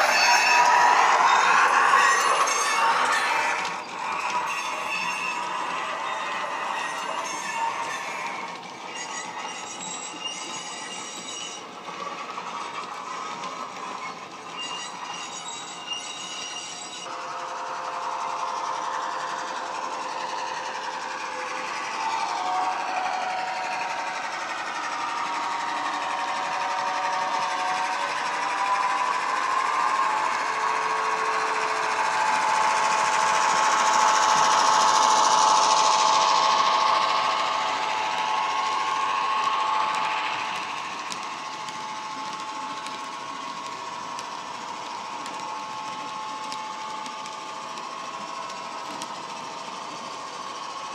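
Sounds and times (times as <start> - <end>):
high wheel squealing: 0.0 - 12.2, 13.9 - 17.2
model train wheels rumbling: 0.0 - 50.9.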